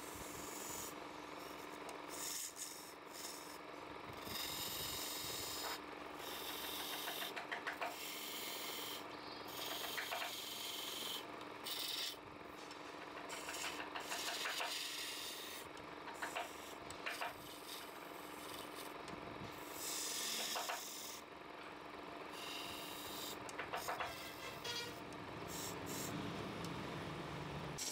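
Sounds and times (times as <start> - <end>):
tool rasping against spinning wood: 4.2 - 12.2, 13.3 - 15.6, 22.4 - 26.2
wood lathe humming: 7.9 - 12.1, 16.4 - 19.0, 22.4 - 23.4.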